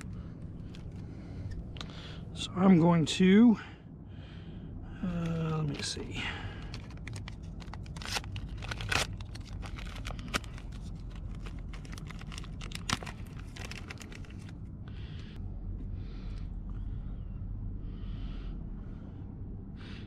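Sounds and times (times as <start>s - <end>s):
plastic sheet crinkling and tearing: 6.6s - 14.6s.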